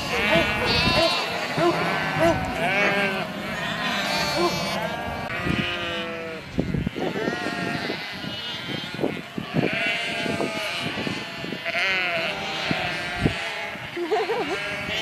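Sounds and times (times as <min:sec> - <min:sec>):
sheep cropping grass: 0:00.0 - 0:06.2
sheep bleating: 0:00.0 - 0:15.0.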